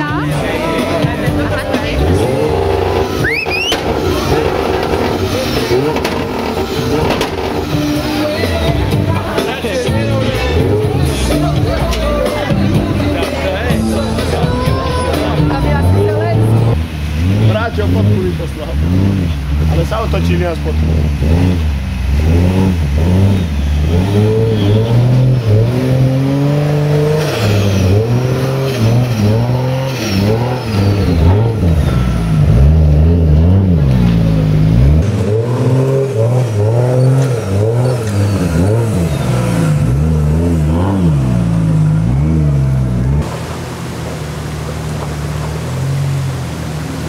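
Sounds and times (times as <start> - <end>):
engine revving up and down: 0.0 - 47.0.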